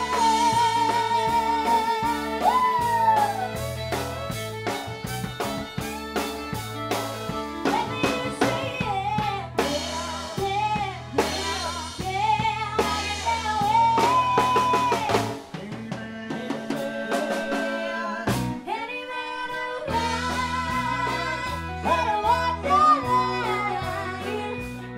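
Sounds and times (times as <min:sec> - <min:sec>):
fiddle melody: 0:00.0 - 0:15.1, 0:18.7 - 0:24.9
electric guitar: 0:00.0 - 0:15.6, 0:19.6 - 0:24.9
drum kit: 0:00.0 - 0:18.9, 0:19.5 - 0:24.9
bass: 0:00.0 - 0:24.9.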